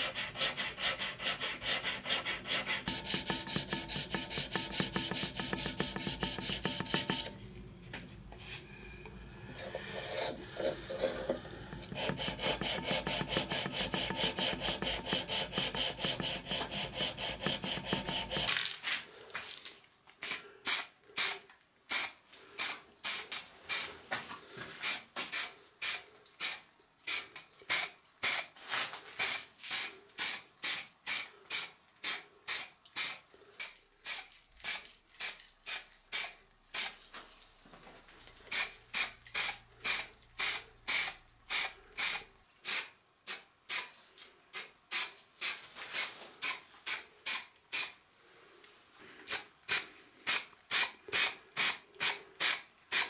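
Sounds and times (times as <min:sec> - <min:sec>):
spray paint hissing in bursts: 0:20.2 - 0:23.9, 0:24.8 - 0:28.6, 0:29.2 - 0:37.0, 0:38.5 - 0:43.9, 0:44.5 - 0:48.0, 0:49.3 - 0:53.0.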